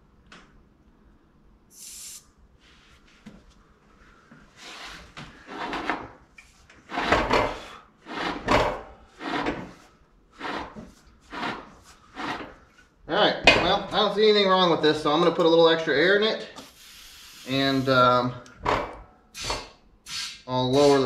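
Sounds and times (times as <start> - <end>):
short air hiss: 1.7 - 2.8, 16.6 - 18.2.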